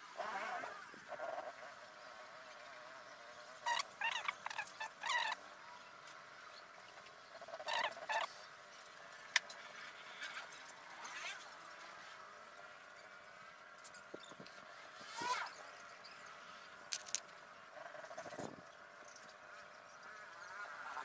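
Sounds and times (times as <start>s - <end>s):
animal calls: 0.2s - 5.9s, 7.3s - 8.5s.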